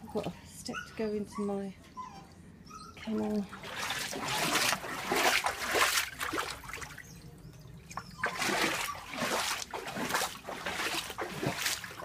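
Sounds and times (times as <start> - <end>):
feet splashing through water: 3.5 - 7.1, 8.2 - 12.0.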